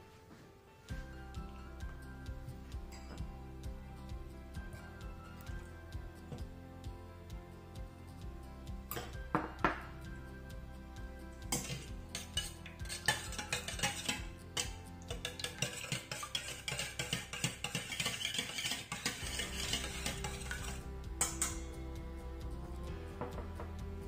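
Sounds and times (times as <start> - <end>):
background music: 0.0 - 24.0
whisk beating in metal bowl: 11.5 - 21.6.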